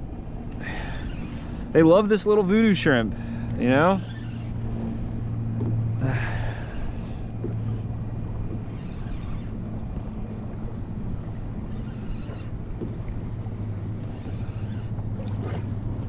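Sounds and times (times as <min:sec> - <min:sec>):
boat engine droning: 0:00.0 - 0:16.0
water lapping: 0:00.0 - 0:16.0.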